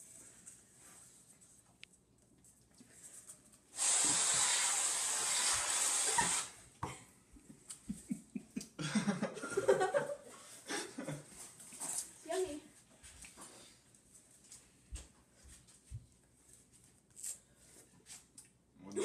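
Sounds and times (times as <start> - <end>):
aerosol whipped cream spraying: 3.8 - 6.6.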